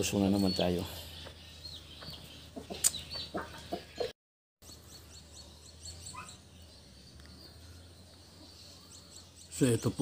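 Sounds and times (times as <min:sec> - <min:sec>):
small birds chirping: 0:00.0 - 0:10.0
chicken clucking: 0:02.0 - 0:04.1.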